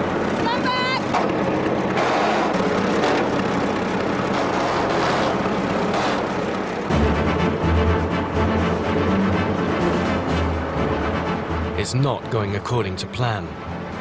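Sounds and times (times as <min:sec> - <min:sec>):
tractor engine running: 0:00.0 - 0:14.0
deep low music: 0:06.8 - 0:14.0.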